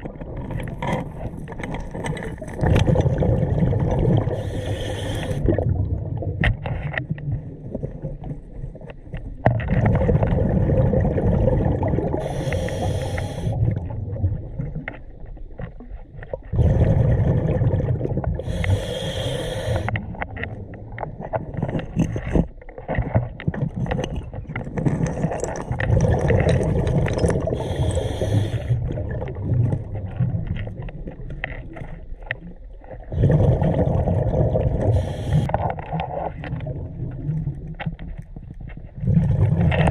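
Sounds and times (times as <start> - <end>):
underwater exhaled bubbles rumbling: 0.0 - 39.9
regulator hiss: 12.2 - 13.6, 18.5 - 19.9.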